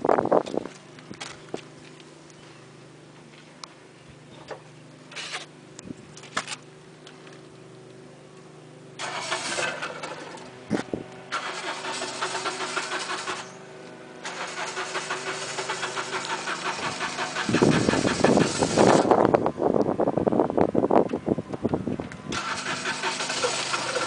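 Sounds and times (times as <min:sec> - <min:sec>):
garden tractor engine running: 0:00.0 - 0:24.0
fast rattly ticking: 0:11.4 - 0:13.5, 0:14.2 - 0:19.1, 0:22.4 - 0:24.0.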